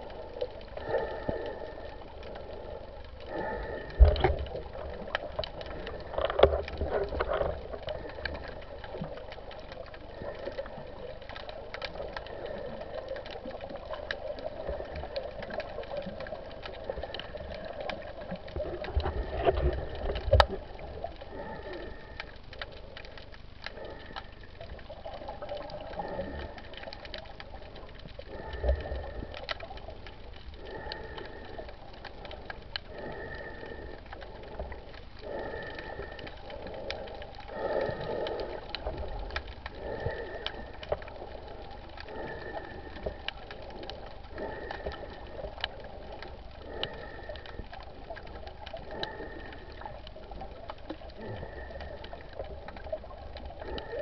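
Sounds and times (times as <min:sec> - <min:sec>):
fine crackle of tiny clicks: 0:00.0 - 0:54.0
muffled underwater hum: 0:00.0 - 0:54.0.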